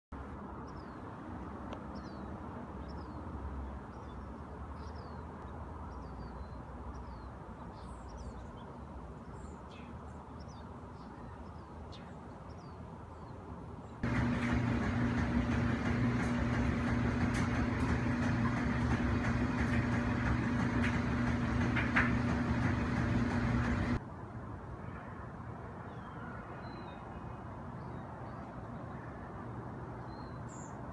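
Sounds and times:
mechanical hum with low drone: 14.0s - 24.0s.

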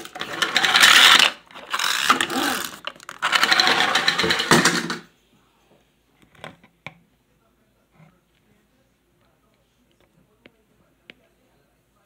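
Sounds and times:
chattering teeth toy rattling: 0.4s - 4.6s.

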